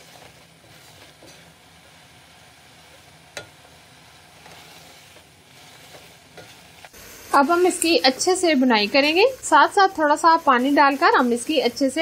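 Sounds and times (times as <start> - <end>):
spatula stirring in pot: 0.0 - 6.9
chicken sizzling in oil: 0.0 - 12.0.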